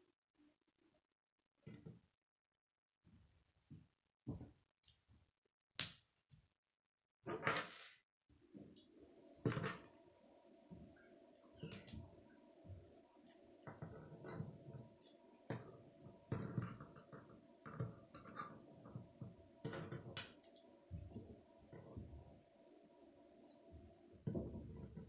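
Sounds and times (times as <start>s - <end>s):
plastic pieces snapping together: 5.8s - 6.1s
faint steady hum: 8.3s - 25.0s.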